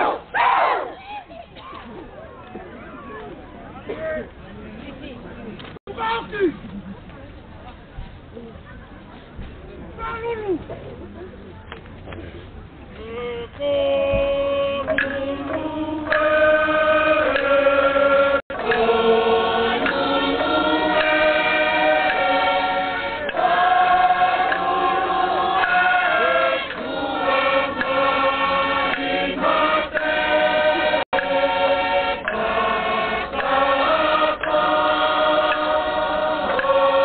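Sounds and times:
chorus singing in harmony: 14.1s - 37.0s.

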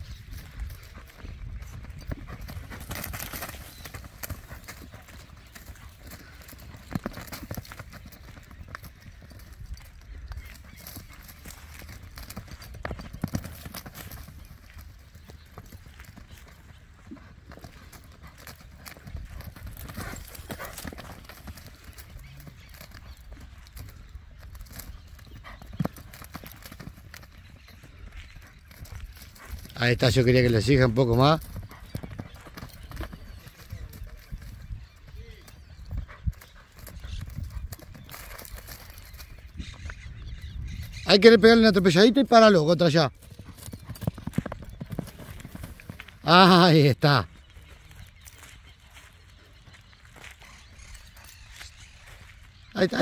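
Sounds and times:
horse hoofbeats on dry ground: 0.0s - 53.0s.

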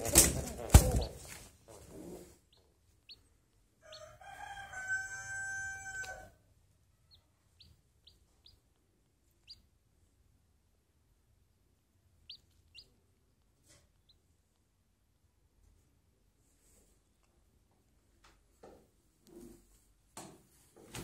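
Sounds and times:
rooster crowing: 3.8s - 6.4s.

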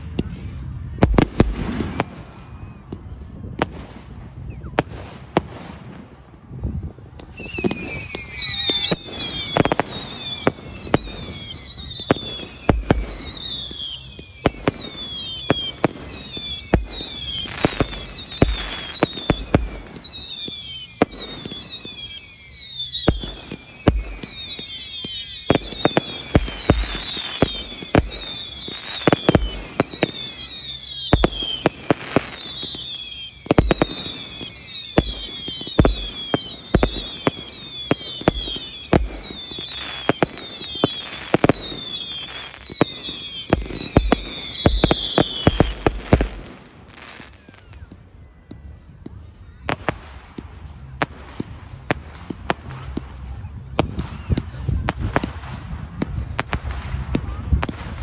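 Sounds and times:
fireworks bangs: 0.0s - 58.0s
fireworks whistles falling in pitch: 7.2s - 48.8s.

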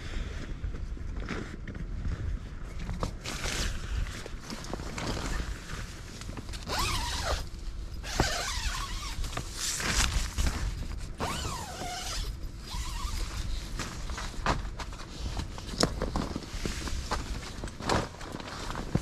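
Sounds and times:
nylon fabric rustling: 3.2s - 19.0s
tent zipper rasping open: 6.6s - 10.6s, 11.2s - 13.6s.

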